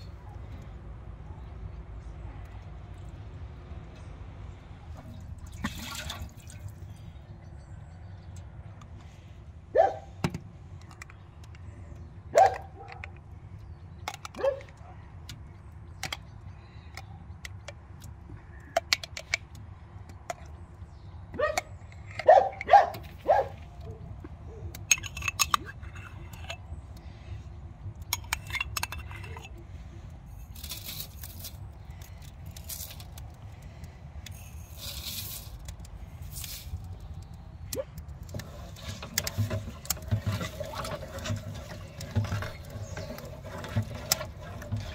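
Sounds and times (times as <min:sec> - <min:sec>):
spices sprinkling: 0:34.3 - 0:37.4.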